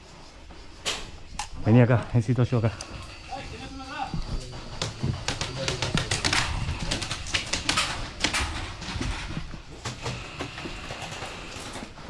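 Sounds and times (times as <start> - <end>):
pellets cracking against wood: 4.7 - 12.0.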